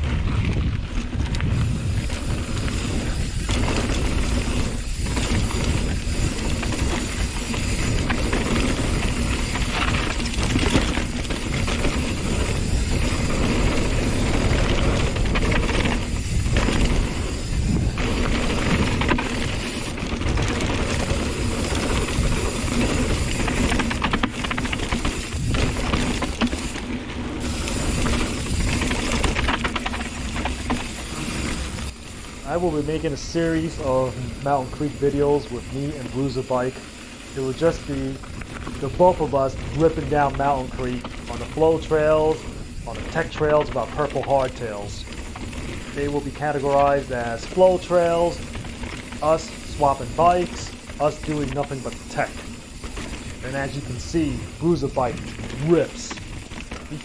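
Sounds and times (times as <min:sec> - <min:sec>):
wind on microphone: 0:00.0 - 0:26.8
bike rattling: 0:00.0 - 0:57.0
tyres crunching over gravel: 0:00.0 - 0:57.0.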